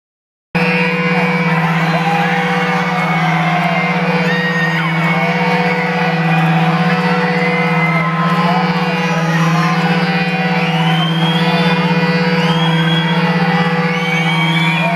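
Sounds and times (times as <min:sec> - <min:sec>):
crowd whooping and shouting: 0:00.6 - 0:14.9
rock band droning chord: 0:00.6 - 0:14.9.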